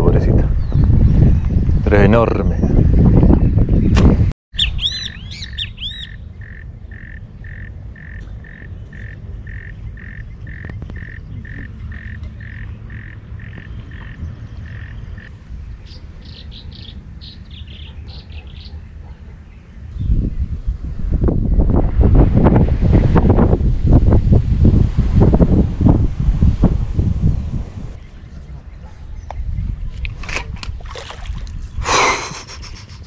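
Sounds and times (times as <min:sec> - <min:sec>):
wind rumbling on microphone: 0:00.0 - 0:33.0
birds calling: 0:02.4 - 0:20.6, 0:27.9 - 0:33.0.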